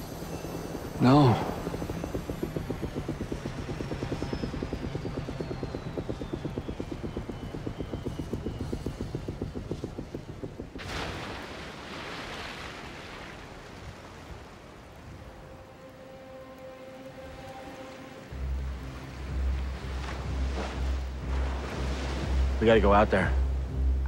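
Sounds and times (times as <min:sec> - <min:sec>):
helicopter rotor chopping: 0:00.0 - 0:11.4.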